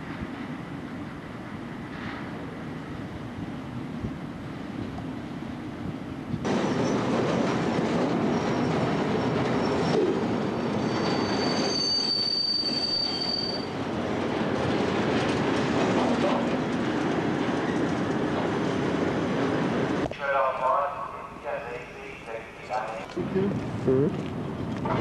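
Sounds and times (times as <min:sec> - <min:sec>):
train wheels rumbling on rails: 0:00.0 - 0:25.0
high wheel squeal: 0:08.2 - 0:13.8.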